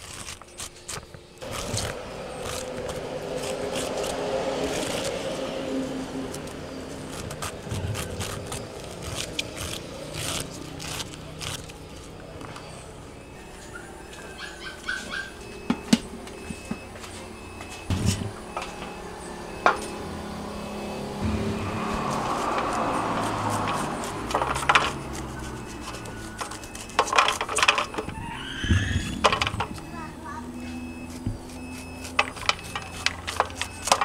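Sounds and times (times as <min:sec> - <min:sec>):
knife scraping corn kernels: 0:00.0 - 0:05.2, 0:06.3 - 0:11.8, 0:21.9 - 0:27.6, 0:31.0 - 0:34.0.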